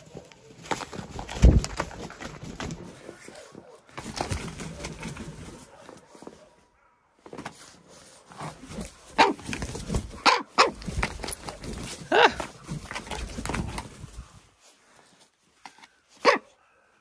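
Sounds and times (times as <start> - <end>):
bird flapping in snow: 0.0 - 5.8.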